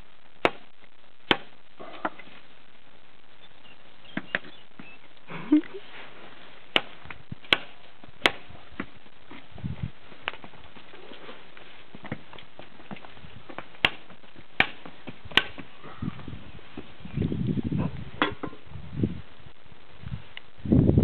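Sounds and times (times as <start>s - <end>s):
hooves knocking on concrete: 4.1s - 5.3s, 6.7s - 9.5s, 10.1s - 16.0s.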